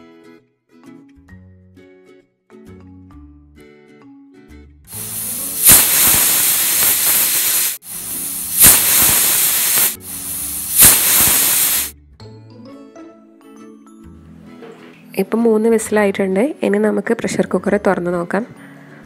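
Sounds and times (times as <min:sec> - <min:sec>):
pressure cooker whistling: 0:04.9 - 0:11.9.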